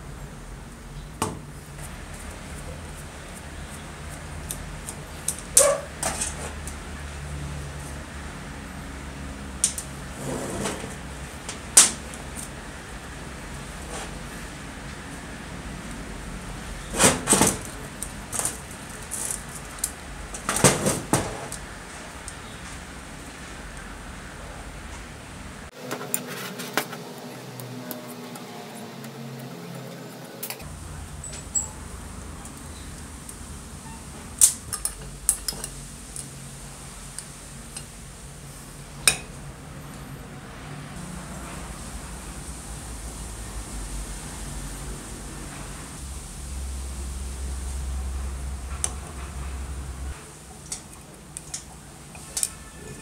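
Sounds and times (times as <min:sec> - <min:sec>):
metal scraping on workbench: 0:10.1 - 0:11.0.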